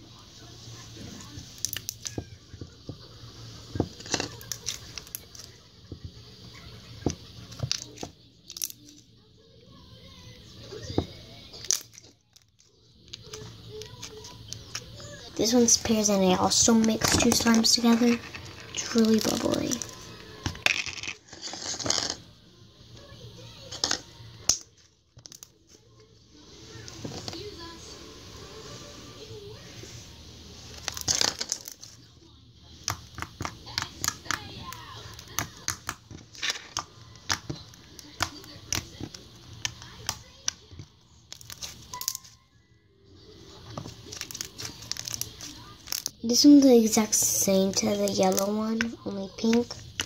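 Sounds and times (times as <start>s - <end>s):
slime squishing: 0.0s - 9.0s, 10.7s - 22.2s, 23.8s - 42.4s, 43.3s - 50.0s
crackly plastic handling: 30.7s - 32.1s, 32.8s - 42.4s, 43.6s - 50.0s.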